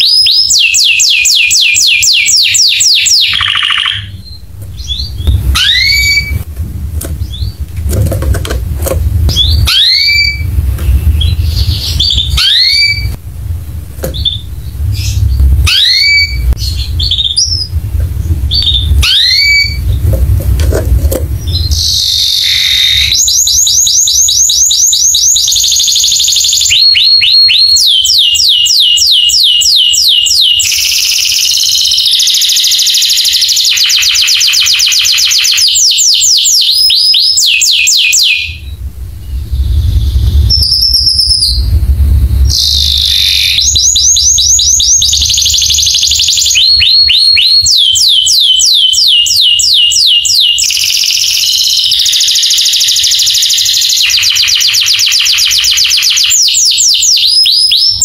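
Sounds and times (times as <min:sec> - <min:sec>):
canary singing trills: 0:00.0 - 0:06.4, 0:09.2 - 0:13.2, 0:14.1 - 0:20.1, 0:21.3 - 0:58.0
low rumble: 0:04.1 - 0:23.2, 0:38.6 - 0:46.8.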